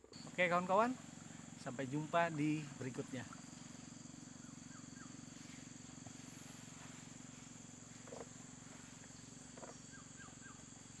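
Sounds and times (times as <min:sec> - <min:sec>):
pulsing insect drone: 0:00.0 - 0:11.0.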